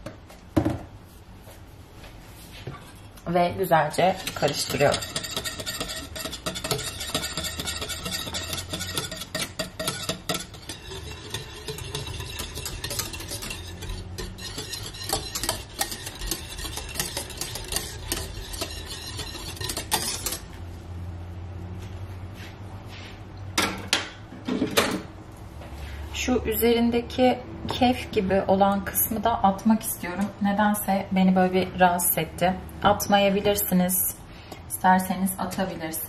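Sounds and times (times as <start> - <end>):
whisk clinking and scraping pot: 3.6 - 20.6, 35.3 - 36.0.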